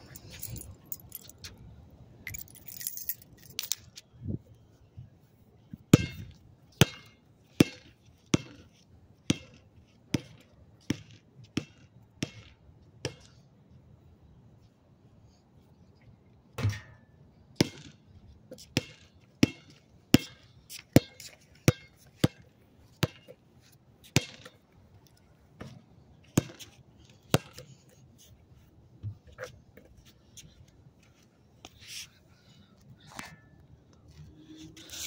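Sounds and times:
basketball bouncing on pavement: 5.9s - 8.6s, 9.2s - 13.4s, 16.6s - 16.9s, 17.6s - 18.0s, 18.6s - 23.3s, 24.1s - 24.6s, 25.6s - 26.7s, 27.3s - 27.7s.

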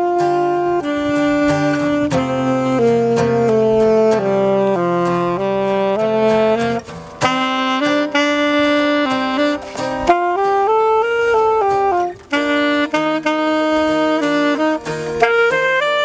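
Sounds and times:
acoustic guitar accompaniment: 0.0s - 16.0s
saxophone melody: 0.0s - 16.0s.

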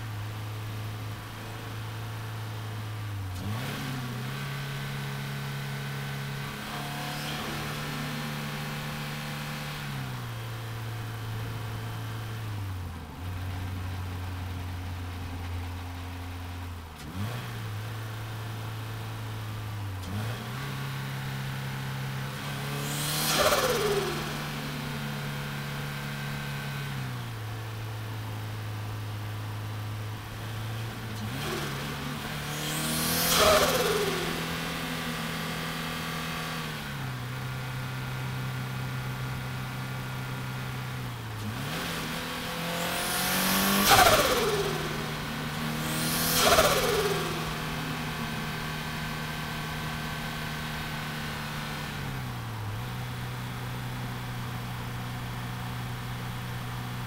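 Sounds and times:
car engine cruising: 0.0s - 57.0s
rush with falling pitch: 22.6s - 25.3s, 31.4s - 36.3s, 42.0s - 50.9s.

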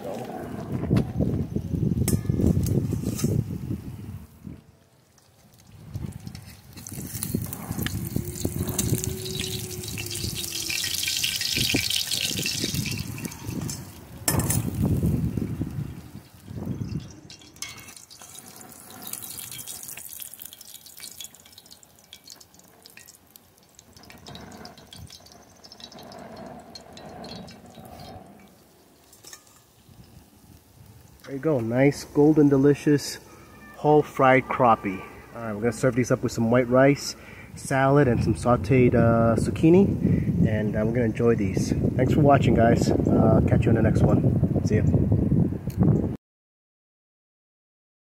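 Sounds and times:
oil sizzling in skillet: 5.0s - 34.2s
oil dripping into pan: 5.2s - 9.0s, 9.8s - 15.1s, 16.1s - 27.8s.

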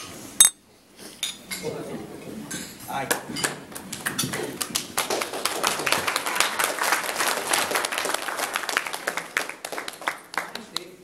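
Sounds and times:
crowd applauding: 4.0s - 11.0s.

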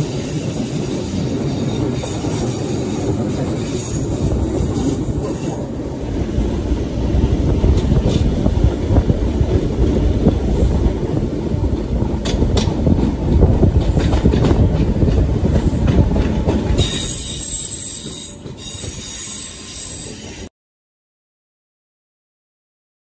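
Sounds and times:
train wheels rumbling over rail joints: 0.0s - 20.5s
high-pitched wheel squeal: 16.8s - 20.5s.

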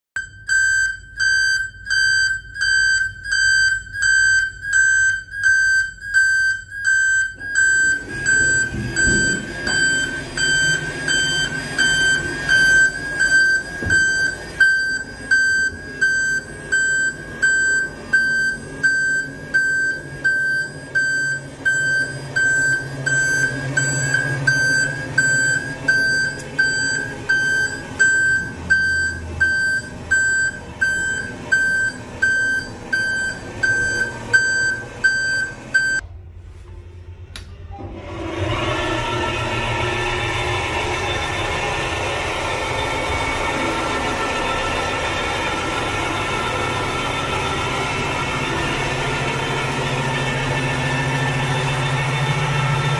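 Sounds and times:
high-pitched alarm beeps: 0.2s - 36.0s
door mechanism humming: 0.4s - 52.9s.

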